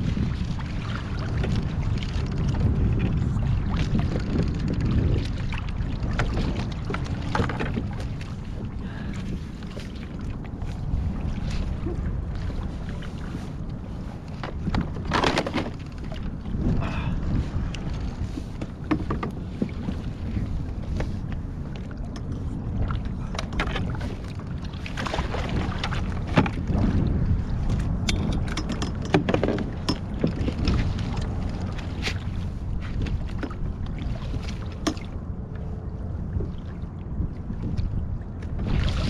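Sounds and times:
water lapping at hull: 0.0s - 39.0s
wind noise on microphone: 0.0s - 39.0s
small knocks and clicks: 18.6s - 20.0s, 28.0s - 30.8s.

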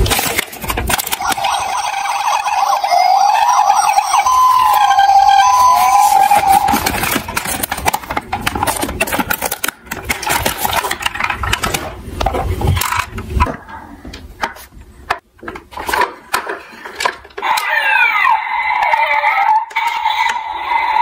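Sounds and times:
cardboard packaging rustling: 5.4s - 12.7s.

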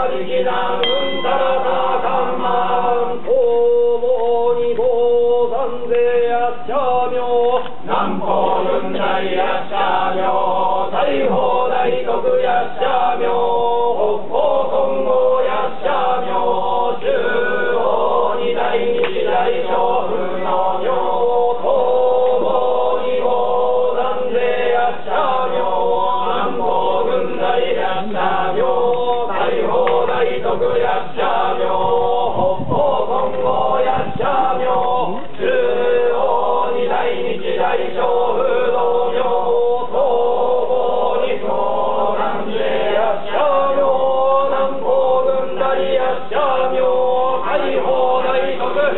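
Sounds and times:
priests chanting in a drone: 0.0s - 48.9s.

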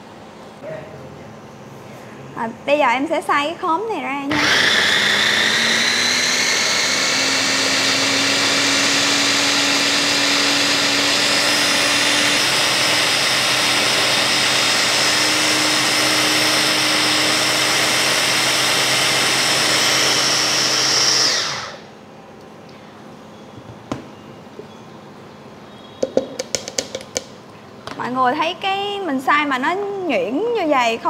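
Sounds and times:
electric food chopper whining: 4.3s - 21.9s.

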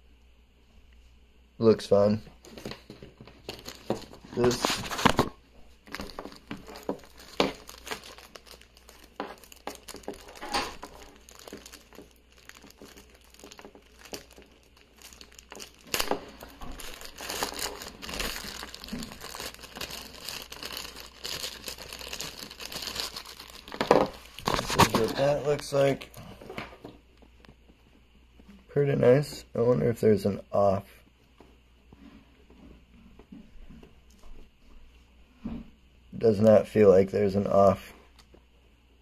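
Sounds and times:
plastic bag crinkling: 2.4s - 26.6s.

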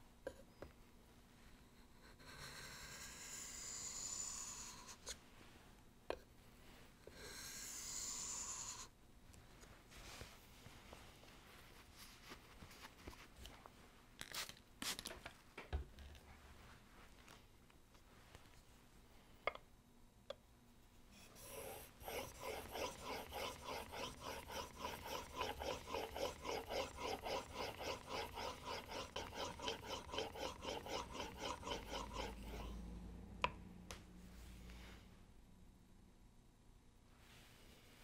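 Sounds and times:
blade rasping on a waterstone: 21.2s - 32.8s.

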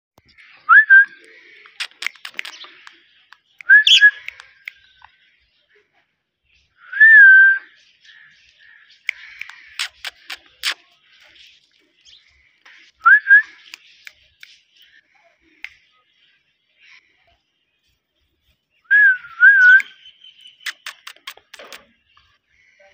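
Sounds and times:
parakeet chirps and clicks: 1.5s - 4.8s, 9.0s - 11.4s, 13.6s - 14.7s, 19.8s - 21.9s.

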